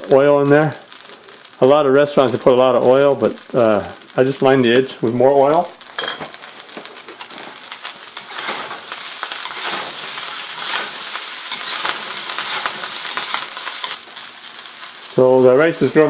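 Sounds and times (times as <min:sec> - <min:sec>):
food sizzling in a wok: 0:00.0 - 0:16.0
metal ladle scraping a wok: 0:08.1 - 0:14.0.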